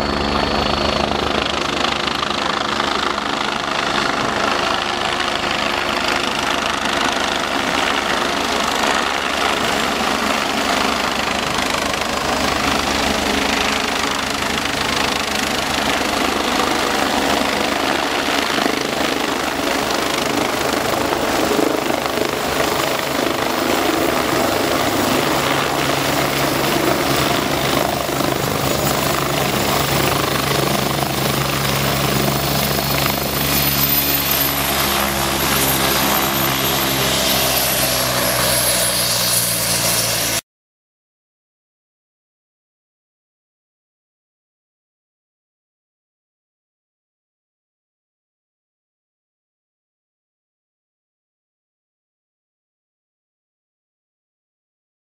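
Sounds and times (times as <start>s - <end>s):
helicopter turbines and rotor: 0.0s - 40.4s.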